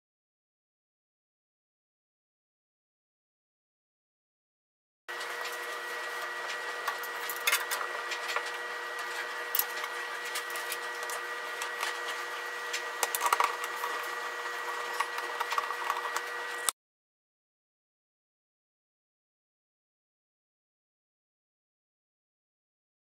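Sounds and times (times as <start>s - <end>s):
steady hum with high whine: 5.1s - 16.7s.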